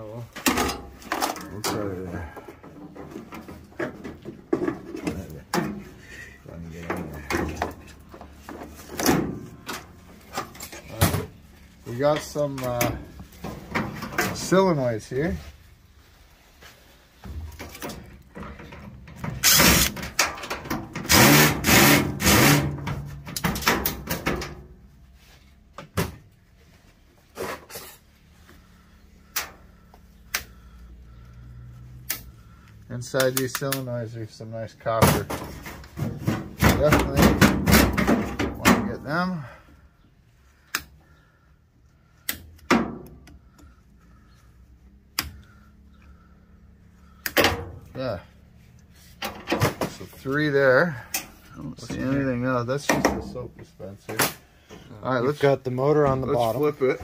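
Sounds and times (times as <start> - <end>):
hoses and valves scraping and rattling: 0.0 - 25.8, 26.5 - 29.9, 30.5 - 39.7, 47.0 - 57.0
plastic and metal snaps: 33.2 - 33.9, 42.2 - 43.4.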